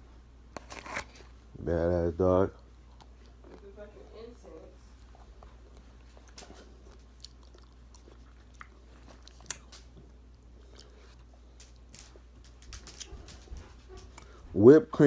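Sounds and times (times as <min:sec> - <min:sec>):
person chewing: 0:02.6 - 0:03.7, 0:04.9 - 0:13.1
wet mouth clicks and smacks: 0:06.2 - 0:09.9.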